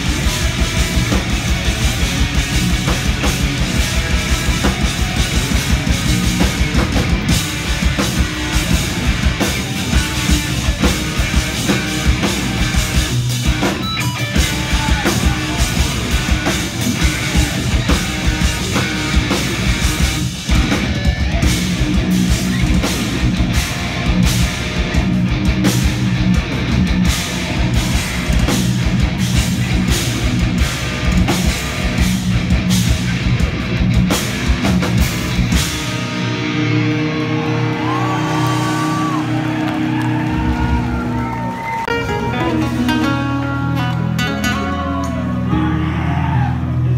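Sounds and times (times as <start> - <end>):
fast dense drumming: 0.0 - 36.5
electric guitars playing metal: 0.0 - 46.9.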